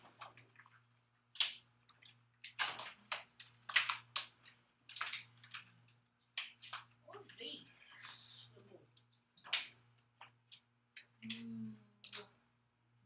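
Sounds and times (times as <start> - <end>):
paper cards rustling: 0.0 - 8.1.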